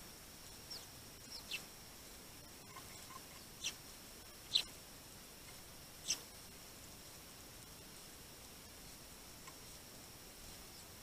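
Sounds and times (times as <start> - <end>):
sparrows chirping: 0.4 - 1.7, 2.6 - 4.8, 6.0 - 6.3.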